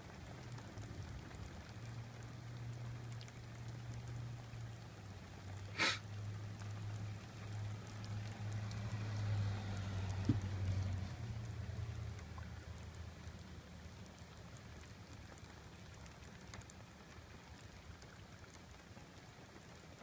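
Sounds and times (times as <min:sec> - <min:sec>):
rain falling and dripping: 0:00.0 - 0:20.0
sharp tap: 0:10.3 - 0:10.5.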